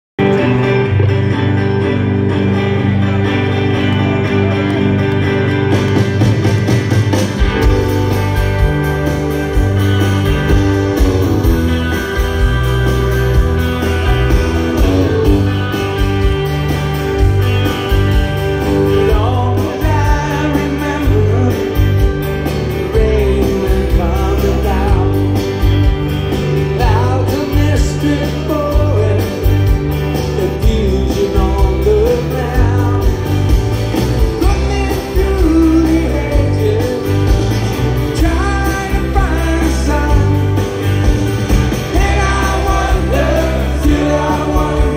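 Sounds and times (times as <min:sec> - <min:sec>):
live rock band through pa: 0:00.2 - 0:44.9
man singing: 0:18.7 - 0:25.4, 0:26.7 - 0:29.6, 0:30.2 - 0:33.3, 0:34.4 - 0:40.8, 0:41.7 - 0:44.9.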